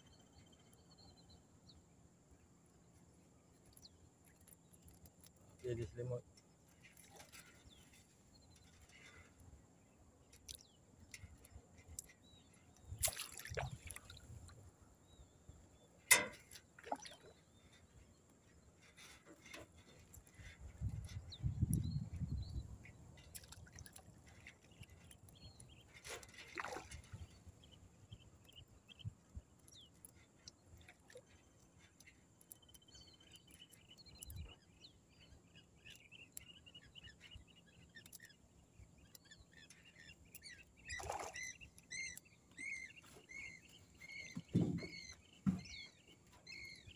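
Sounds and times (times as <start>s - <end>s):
water splashing and dripping: 12.8s - 14.6s, 16.1s - 17.4s, 23.2s - 24.7s, 26.0s - 27.3s, 40.9s - 41.5s.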